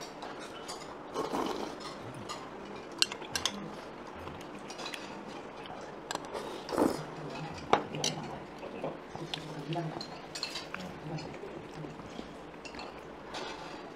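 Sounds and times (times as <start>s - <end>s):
utensils clinking on dishes: 0.0s - 3.8s, 4.5s - 6.4s, 9.8s - 13.9s.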